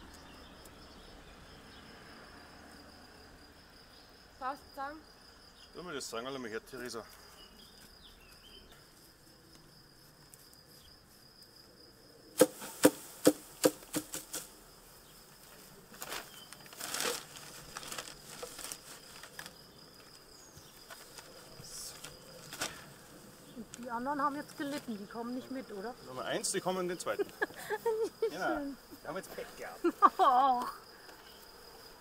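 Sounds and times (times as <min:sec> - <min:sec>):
sharp knocks on wooden hive box: 0:12.4 - 0:14.5
honeybee swarm buzzing: 0:12.4 - 0:19.2, 0:20.2 - 0:32.0
handling noises: 0:15.3 - 0:23.9.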